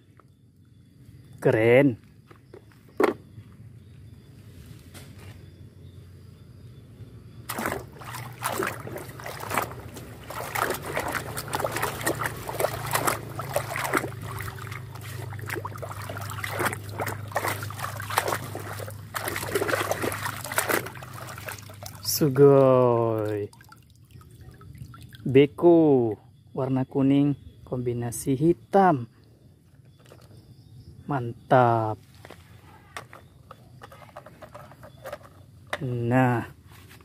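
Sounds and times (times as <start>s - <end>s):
water splashing in a tub: 7.4s - 25.4s.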